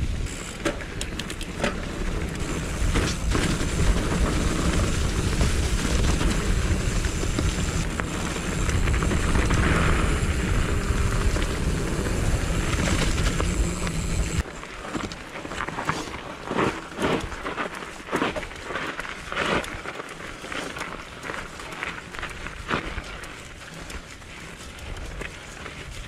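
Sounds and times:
mountain bike rumbling on dirt: 0.0 - 26.0
wind over microphone: 1.1 - 14.4.

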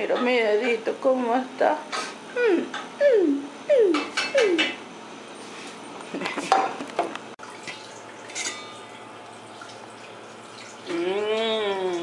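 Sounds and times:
kitchen clatter: 4.0 - 4.8, 6.1 - 8.9.

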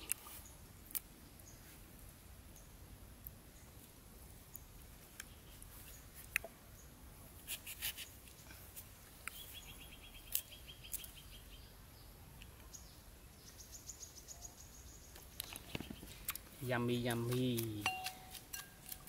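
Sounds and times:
knife cutting citrus fruit: 17.1 - 19.0.

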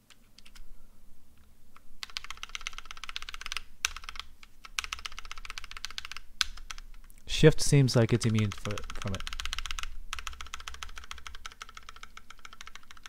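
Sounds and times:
keyboard key clacking: 8.2 - 13.0.

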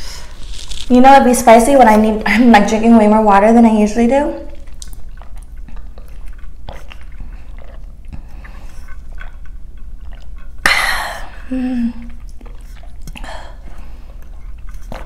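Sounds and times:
sipping through a straw: 0.0 - 1.0
wet mouth clicks and swallows: 4.5 - 11.4, 12.0 - 15.0
person humming: 11.4 - 12.1.

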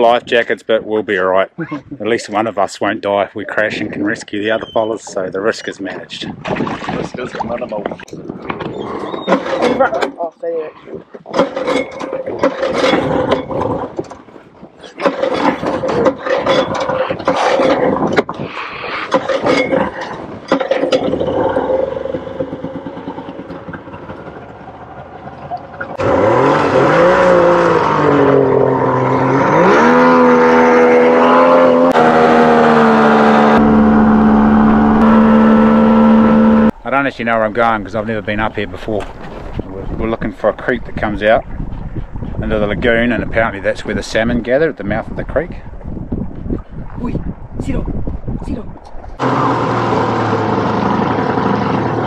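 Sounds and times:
outboard motor running: 20.8 - 36.7, 49.2 - 52.0.

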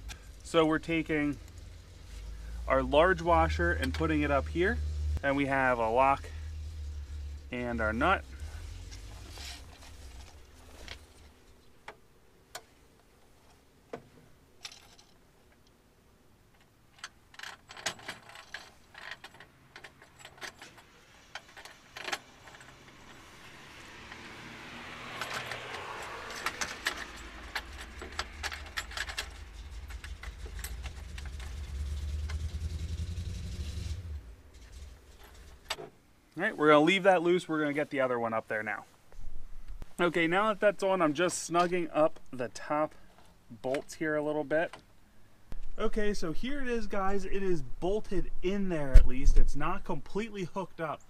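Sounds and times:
metal bolts and washers clinking: 0.0 - 4.9, 14.6 - 15.6, 16.5 - 24.2, 25.1 - 32.9, 34.5 - 36.0.

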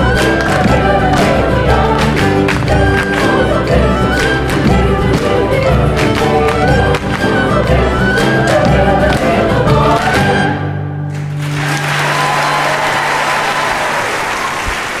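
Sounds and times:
women's choir with instruments: 0.0 - 11.1
audience applause: 11.1 - 15.0.

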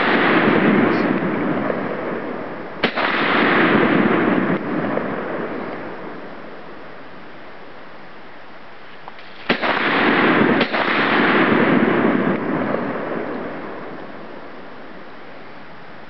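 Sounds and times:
rifle shots with echo: 0.0 - 6.3, 9.2 - 14.5.

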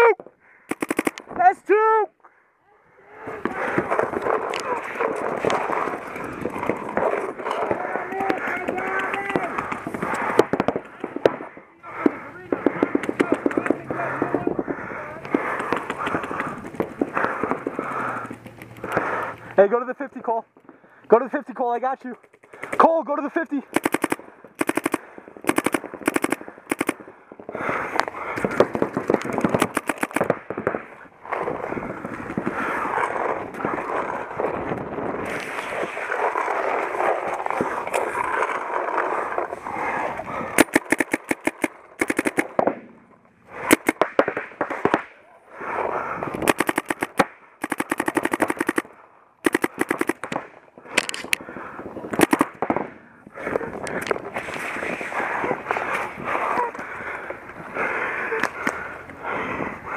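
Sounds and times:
paintball markers firing: 0.7 - 1.4, 3.4 - 14.6, 15.2 - 19.4, 22.0 - 23.0, 23.6 - 30.8, 39.8 - 42.9, 43.5 - 45.2, 46.2 - 51.4, 52.1 - 52.9
steady background noise: 3.2 - 59.9.

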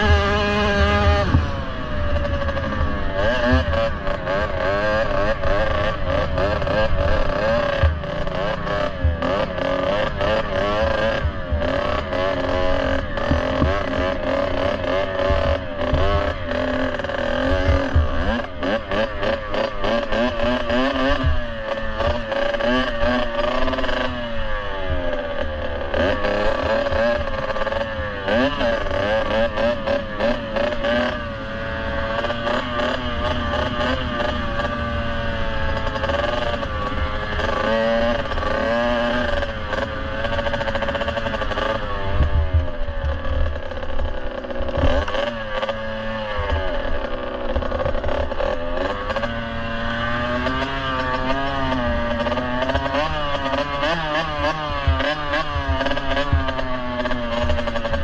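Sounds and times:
motorcycle engine revving: 0.0 - 58.0.

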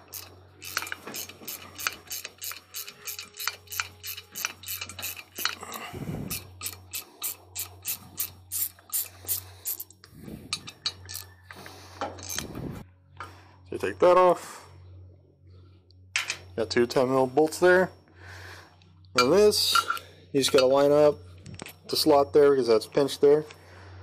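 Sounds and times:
socket ratchet clicking: 0.0 - 11.3, 12.2 - 12.6
low steady hum: 0.0 - 24.0.

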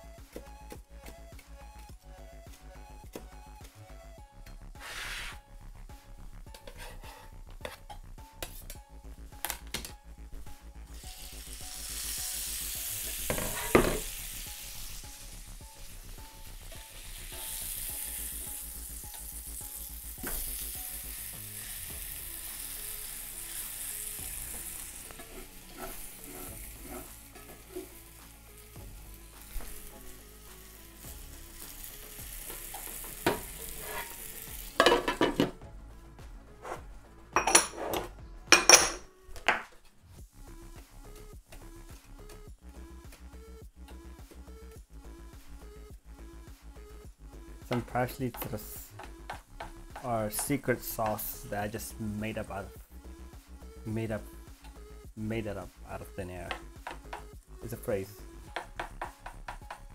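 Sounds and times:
food sizzling in a pan: 10.9 - 35.4
pan and lid clanking: 13.3 - 14.1, 34.8 - 35.6.

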